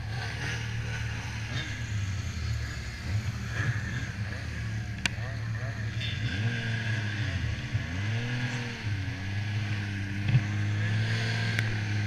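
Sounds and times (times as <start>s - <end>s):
snowmobile engine running: 0.0s - 12.0s.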